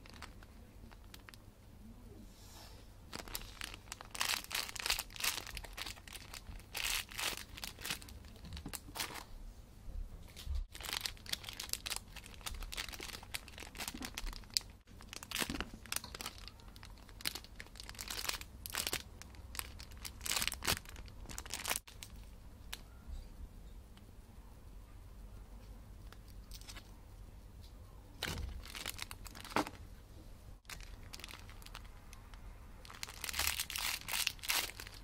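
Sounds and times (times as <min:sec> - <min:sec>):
plastic bags crinkling: 0:00.0 - 0:01.4, 0:03.1 - 0:09.3, 0:10.7 - 0:22.3, 0:28.2 - 0:29.8, 0:30.6 - 0:35.0.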